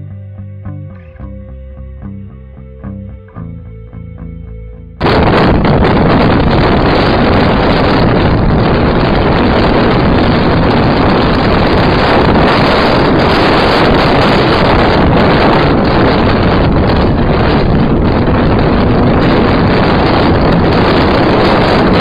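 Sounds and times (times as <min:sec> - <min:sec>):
wind on microphone: 0:05.0 - 0:22.0.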